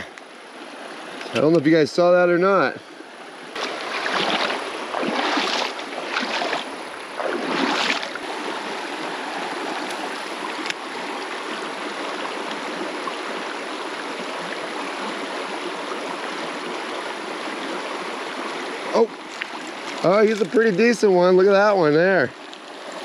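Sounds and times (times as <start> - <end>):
stream flowing: 0.0 - 23.0
footsteps splashing in water: 3.6 - 8.2, 19.2 - 21.0.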